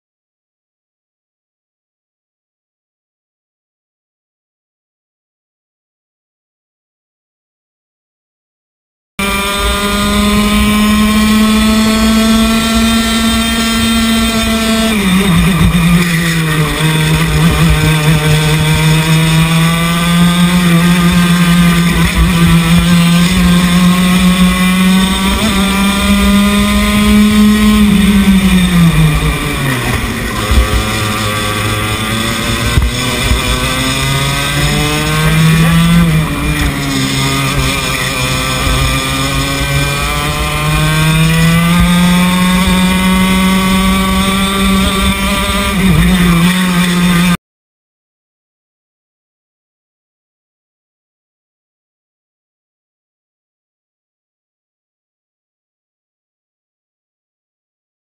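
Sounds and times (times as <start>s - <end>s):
kart engine revving: 9.2s - 47.4s.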